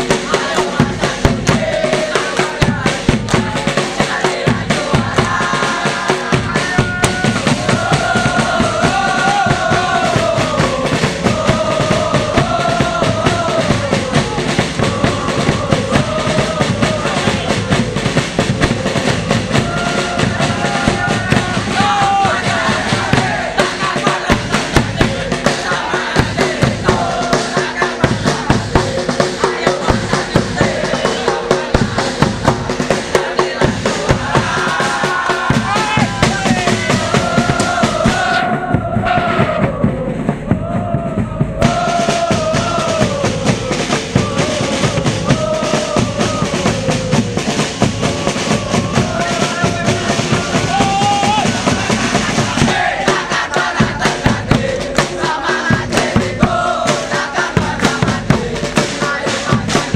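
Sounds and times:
crowd singing and chanting: 0.0 - 59.9
steady drumbeat: 0.0 - 59.9.

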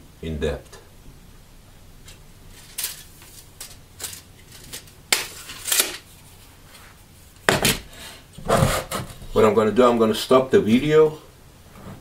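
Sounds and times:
rustles and scrapes: 2.0 - 9.4, 11.7 - 12.0.

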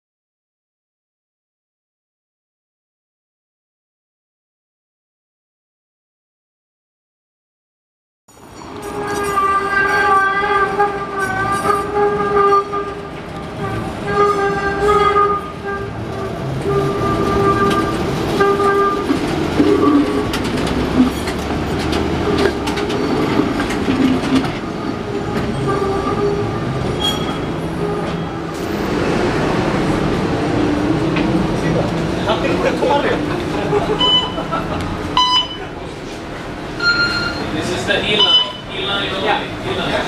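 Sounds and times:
streetcar wheels squealing: 8.3 - 29.9, 30.9 - 40.0
streetcar rumbling over rails: 8.3 - 40.0.

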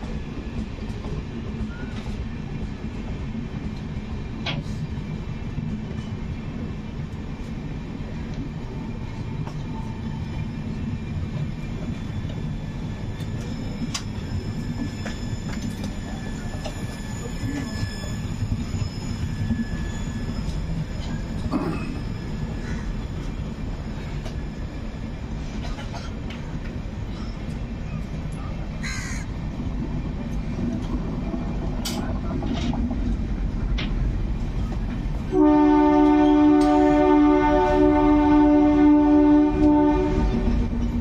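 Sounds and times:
train wheels rumbling on rail: 0.0 - 41.0
crow cawing: 28.8 - 29.3
train horn: 35.3 - 40.8.

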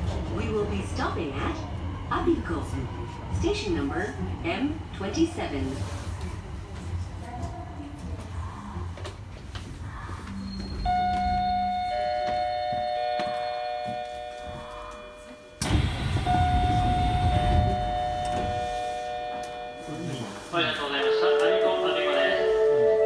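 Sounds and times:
train doors opening: 9.1 - 23.0
train running rumble: 15.6 - 22.6.

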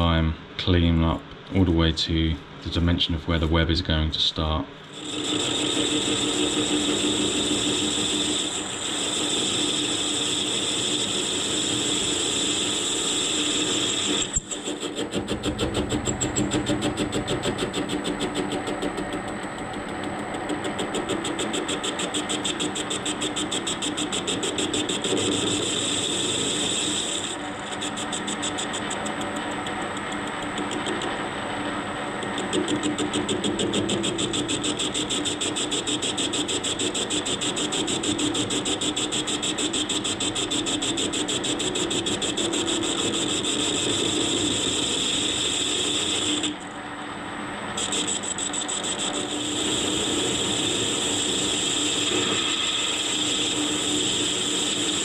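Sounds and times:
metal lathe whining: 4.9 - 17.2, 20.7 - 31.2, 32.2 - 46.8, 47.7 - 55.0
lathe tool cutting metal: 4.9 - 18.6, 20.7 - 31.2, 32.2 - 46.7, 47.8 - 55.0.

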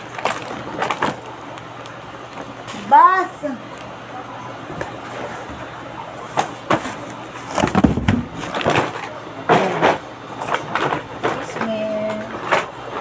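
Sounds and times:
plastic packaging crinkling: 0.0 - 2.9, 4.6 - 9.2.

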